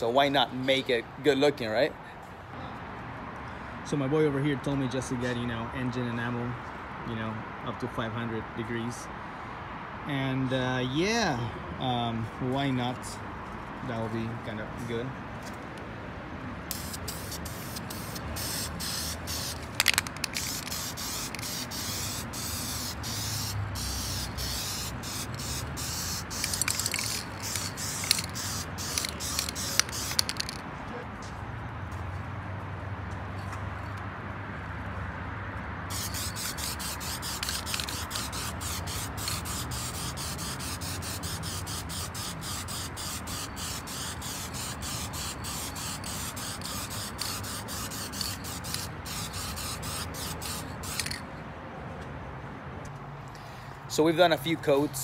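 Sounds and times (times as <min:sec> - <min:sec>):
aerosol can spraying: 0:16.7 - 0:30.6, 0:35.9 - 0:51.2
sharp clicks: 0:19.6 - 0:20.7.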